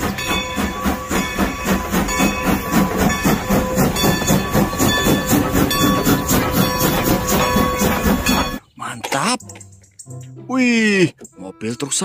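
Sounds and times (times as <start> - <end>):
steam hissing: 0.0 - 8.6
steam locomotive chuffing: 0.0 - 8.6.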